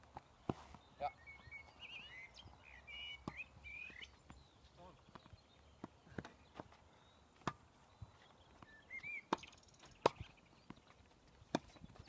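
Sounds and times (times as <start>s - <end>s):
bird chirping: 0.1s - 12.0s
tennis ball bouncing: 3.2s - 4.0s, 7.4s - 7.7s, 8.6s - 12.0s
racket striking tennis ball: 7.4s - 7.6s, 9.3s - 10.3s, 11.5s - 11.7s.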